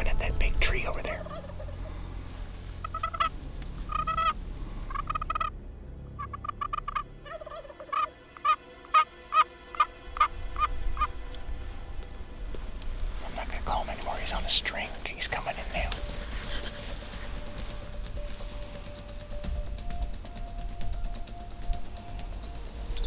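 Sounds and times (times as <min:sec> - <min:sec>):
turkey pot call yelps: 0:01.2 - 0:01.9, 0:02.8 - 0:03.3, 0:03.9 - 0:05.5, 0:06.2 - 0:11.1.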